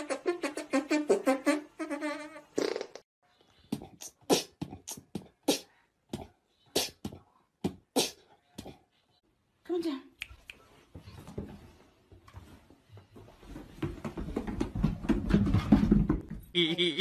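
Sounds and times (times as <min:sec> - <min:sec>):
brass-led novelty music: 0:00.0 - 0:02.7.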